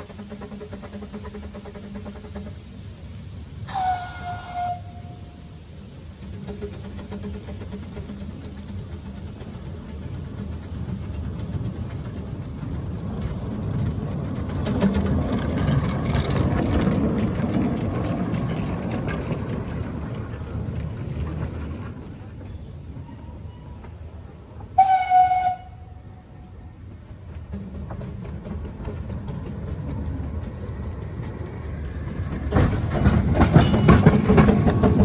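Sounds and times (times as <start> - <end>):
steam locomotive running past: 0.0 - 35.0
steam whistle blast: 3.6 - 5.5, 24.8 - 25.9.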